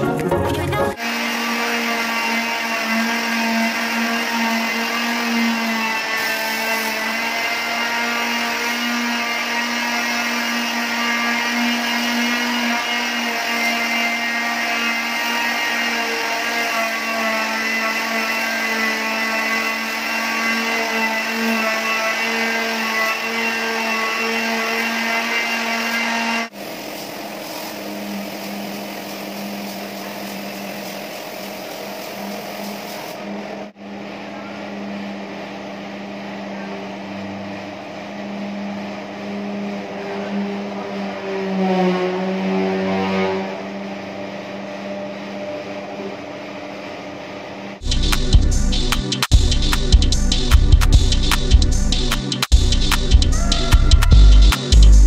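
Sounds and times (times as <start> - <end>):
spray gun motor humming: 0.9 - 40.4.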